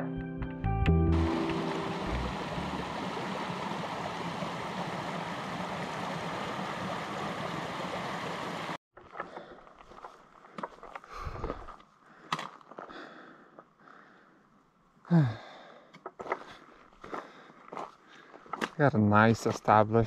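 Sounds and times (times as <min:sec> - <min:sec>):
stream rushing: 0:01.1 - 0:08.8.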